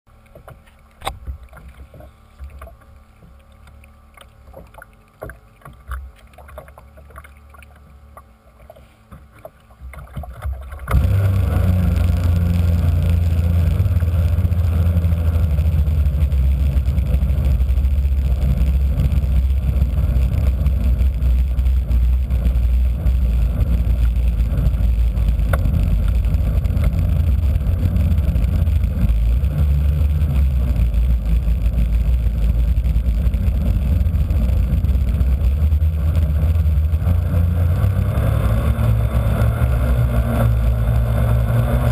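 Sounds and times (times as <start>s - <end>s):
faint clicks and knocks: 0.1s - 11.0s, 18.2s - 37.0s
model boat engine running: 9.1s - 41.9s.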